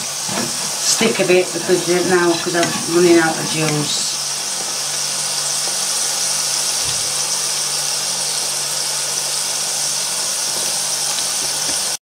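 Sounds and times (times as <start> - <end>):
food sizzling in frying pan: 0.0 - 12.0.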